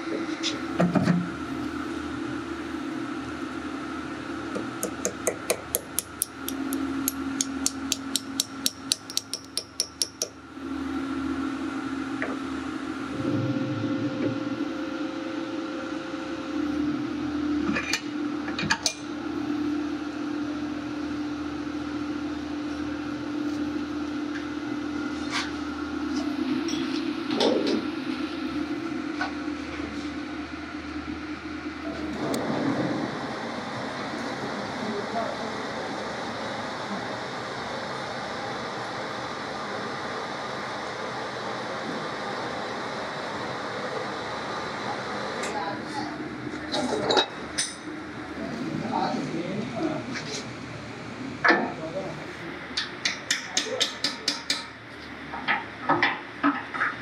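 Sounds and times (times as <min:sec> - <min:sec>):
low machine hum: 0:00.0 - 0:57.0.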